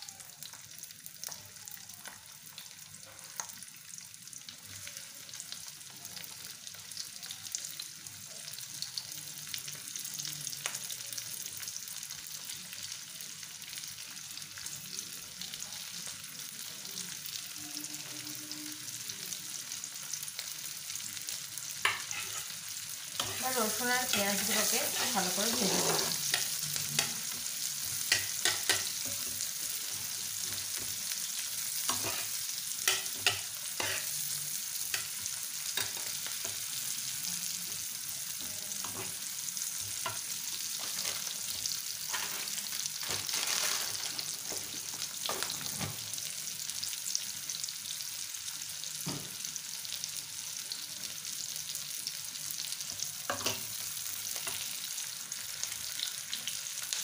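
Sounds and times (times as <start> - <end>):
onions sizzling in oil: 0.0 - 57.0
spatula scraping and tapping pan: 21.8 - 22.5, 23.2 - 27.2, 28.1 - 29.4, 31.9 - 34.1.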